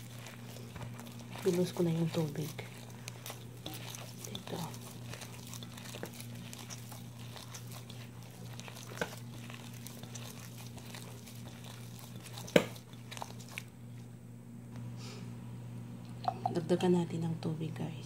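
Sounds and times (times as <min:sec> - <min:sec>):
hand squeezing crumbly dough: 0:00.0 - 0:14.2
steady low hum: 0:00.0 - 0:18.0.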